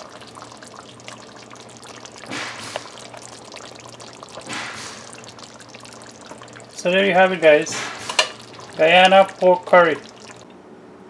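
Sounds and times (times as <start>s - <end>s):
liquid spilling: 0.0s - 10.5s.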